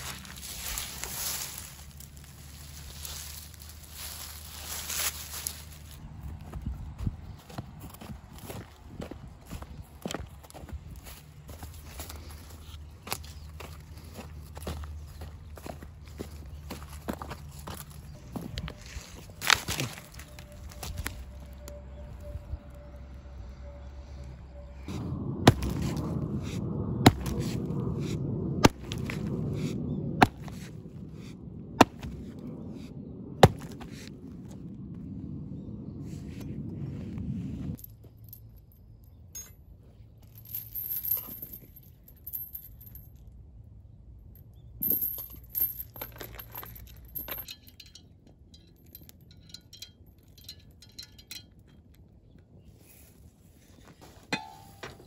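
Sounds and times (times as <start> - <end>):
hatchet chopping branch: 33.4 - 34.1
metal clinks: 37.7 - 43.4, 44.2 - 52.1, 54.3 - 55.0.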